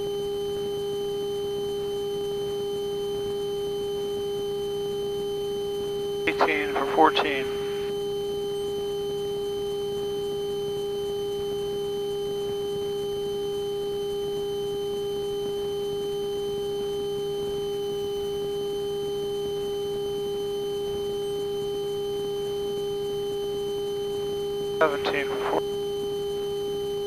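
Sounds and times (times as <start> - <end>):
steady electrical whine: 6.3 - 7.9, 24.8 - 25.6.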